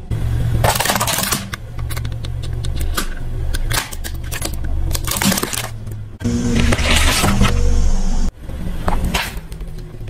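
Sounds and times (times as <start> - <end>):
low steady drone: 0.0 - 8.9
plastic toy cracking under tyre: 2.8 - 5.8.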